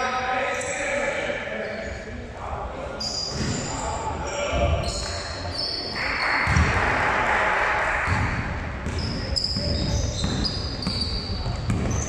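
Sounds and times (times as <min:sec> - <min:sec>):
sneakers squeaking: 0:01.6 - 0:02.1, 0:03.0 - 0:06.8, 0:08.1 - 0:12.0
basketball bouncing: 0:06.4 - 0:06.8, 0:08.1 - 0:12.0.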